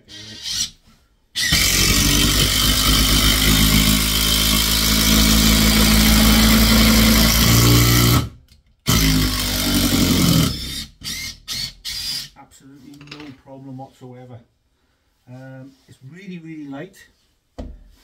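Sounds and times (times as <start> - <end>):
impact driver hammering screw: 1.4 - 8.3, 8.9 - 12.2.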